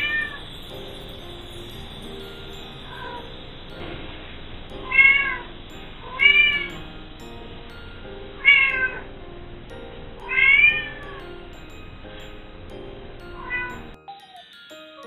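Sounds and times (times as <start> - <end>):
cat meowing: 4.8 - 5.5, 6.1 - 6.7, 8.4 - 9.0, 10.3 - 11.0.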